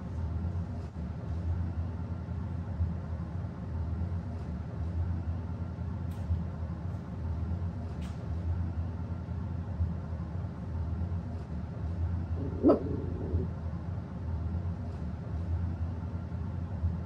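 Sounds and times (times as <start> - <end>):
steady low hum: 10.8 - 17.0
dog barking: 12.4 - 13.5.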